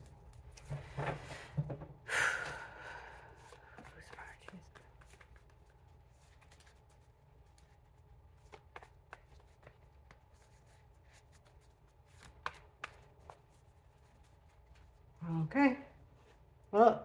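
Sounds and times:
cards shuffling by hand: 3.2 - 15.1
cards snapping: 12.0 - 13.4.

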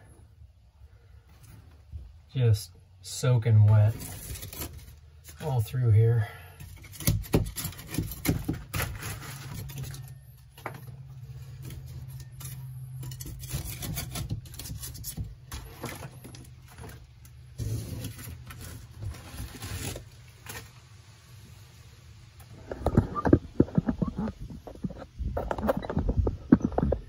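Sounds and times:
damp wood tearing and cracking: 3.8 - 5.6, 6.6 - 21.0.

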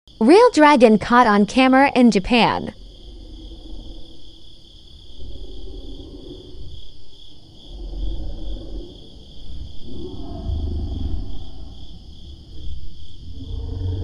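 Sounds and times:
crickets chirping: 0.1 - 14.0
low rumbling: 13.2 - 14.0.

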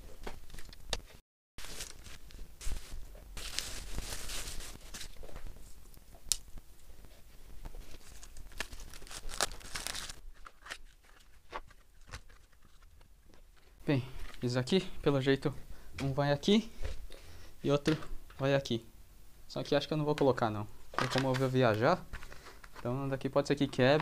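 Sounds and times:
packaging wrap tearing and crinkling: 3.4 - 5.2, 7.9 - 12.8.

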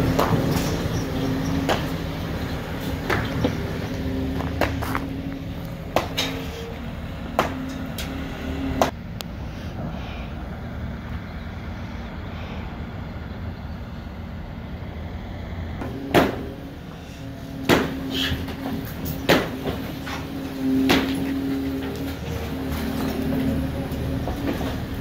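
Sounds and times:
heavy diesel machinery running: 0.0 - 25.0
sharp metal bangs and clanks: 5.9 - 6.7, 15.8 - 16.7, 17.6 - 23.6.

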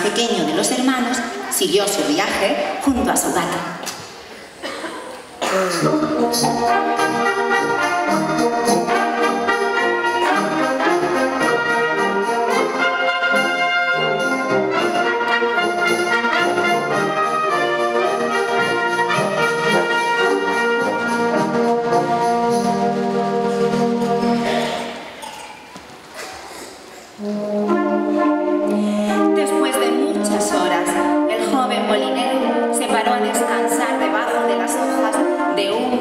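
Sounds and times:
trumpets: 5.4 - 25.4, 26.5 - 36.0
wind band playing: 5.7 - 25.2, 27.1 - 36.0.

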